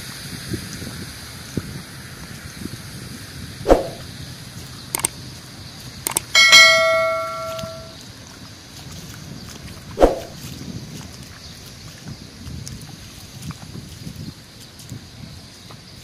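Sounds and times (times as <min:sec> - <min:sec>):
sharp mouse clicks: 0:03.7 - 0:04.0, 0:06.1 - 0:06.3, 0:10.0 - 0:10.3
notification bell ding: 0:06.4 - 0:07.9.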